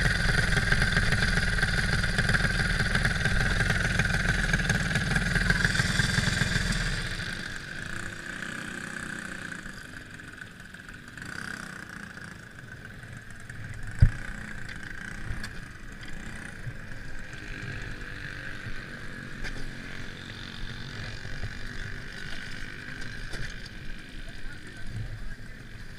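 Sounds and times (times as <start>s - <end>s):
go-kart engine: 0.0s - 25.9s.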